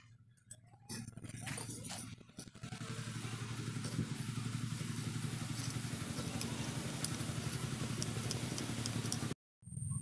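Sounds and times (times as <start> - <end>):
engine running steadily: 0.0 - 10.0.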